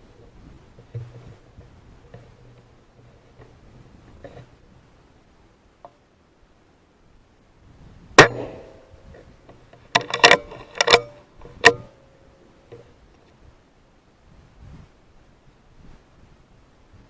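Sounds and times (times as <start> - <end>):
metallic clicks and clanks: 8.2 - 11.9.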